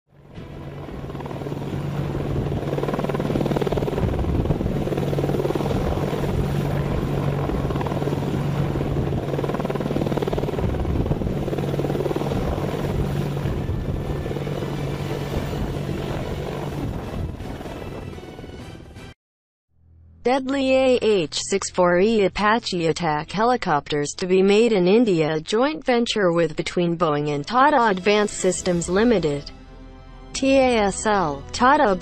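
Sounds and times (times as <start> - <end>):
helicopter rotor and engine: 0.1 - 18.6.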